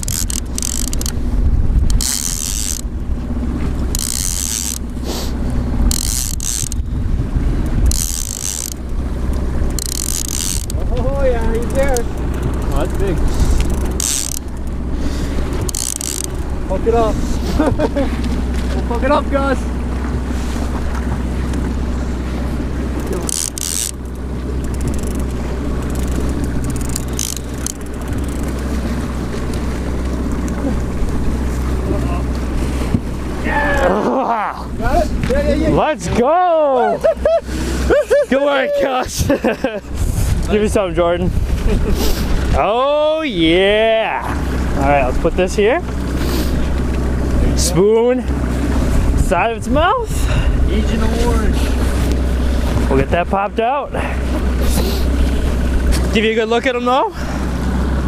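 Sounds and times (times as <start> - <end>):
fishing reel clicking: 0.0 - 1.2, 1.8 - 2.9, 3.9 - 5.0, 5.8 - 6.9, 7.6 - 10.8, 11.4 - 14.8, 15.4 - 16.5, 23.0 - 28.7
low rumble: 0.0 - 38.1
outboard motor running: 0.0 - 58.0.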